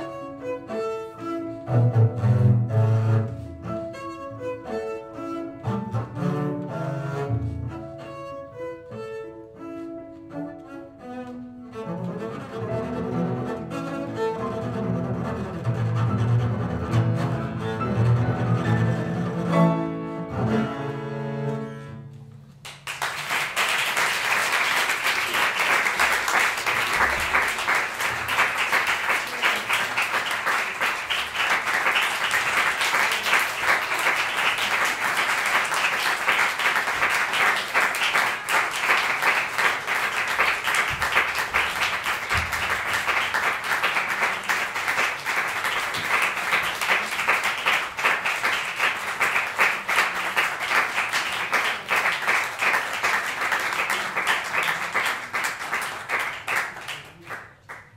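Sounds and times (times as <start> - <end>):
audience applauding: 22.6 - 57.9.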